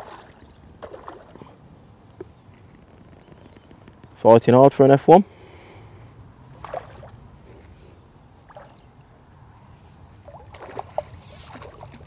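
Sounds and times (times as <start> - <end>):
fish splashing water: 0.0 - 1.5, 6.6 - 7.2, 8.4 - 8.9, 10.2 - 12.0.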